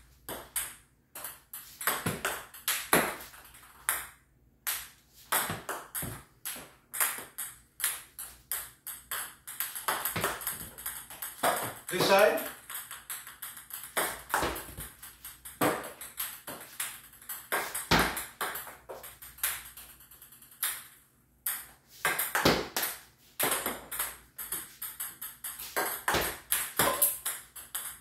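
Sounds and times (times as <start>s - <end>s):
table tennis ball clicking: 4.7s - 22.5s, 23.5s - 28.0s.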